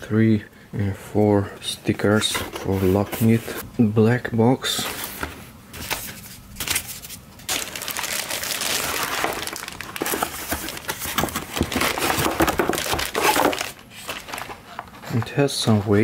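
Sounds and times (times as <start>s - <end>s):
plastic bag crinkling: 7.5s - 15.2s.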